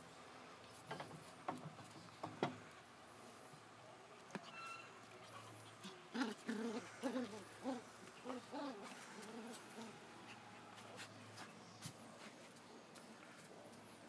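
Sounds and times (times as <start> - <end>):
puppies making play noises: 4.2 - 14.0.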